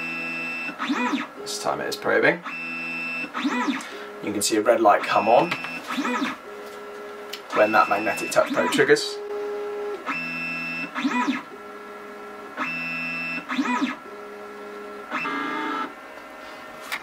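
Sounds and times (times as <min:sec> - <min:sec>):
stepper motors whining: 0:02.8 - 0:04.0, 0:05.0 - 0:06.4, 0:12.6 - 0:14.0.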